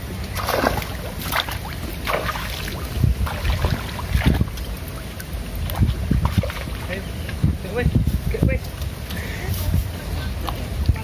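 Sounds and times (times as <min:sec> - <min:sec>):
fish thrashing and splashing: 0:00.2 - 0:06.9
wind buffeting microphone: 0:00.3 - 0:11.0.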